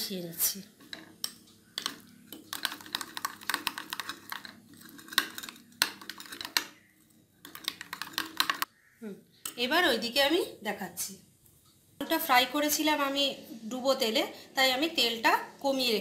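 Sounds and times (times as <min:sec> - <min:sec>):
spoon stirring in bowl: 0:00.6 - 0:08.7.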